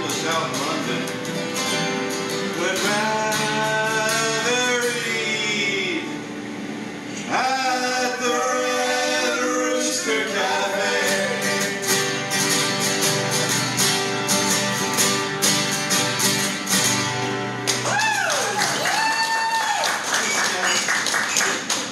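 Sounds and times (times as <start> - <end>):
acoustic guitars strumming: 0.0 - 18.0
men singing: 2.4 - 6.2, 7.2 - 12.8.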